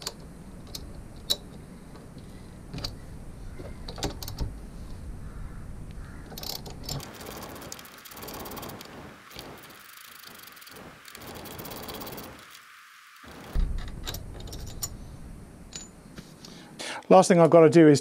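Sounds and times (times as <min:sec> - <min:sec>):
low background noise: 0:00.0 - 0:18.0
socket ratchet clicking: 0:06.3 - 0:12.6.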